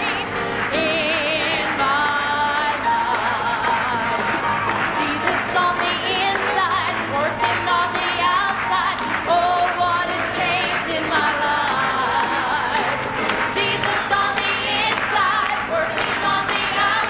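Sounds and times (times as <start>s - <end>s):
congregation clapping along: 0.0s - 17.0s
gospel choir and band: 0.0s - 17.0s
woman singing with vibrato: 0.0s - 17.0s.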